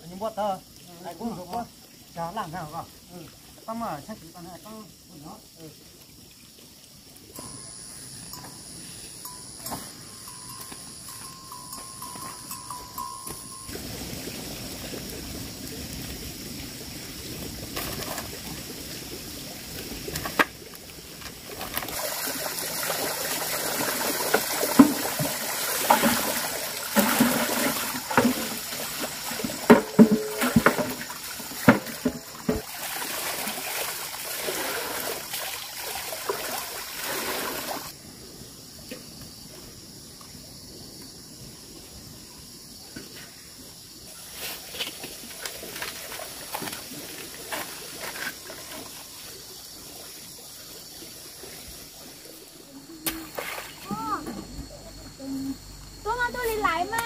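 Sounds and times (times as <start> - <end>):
water pouring and splashing: 0.0 - 38.0, 43.6 - 54.5
sharp knocks and clatter: 29.4 - 32.6.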